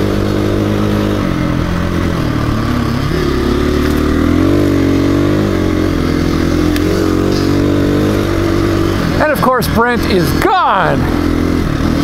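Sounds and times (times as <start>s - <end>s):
dirt bike engine revving: 0.0s - 12.0s.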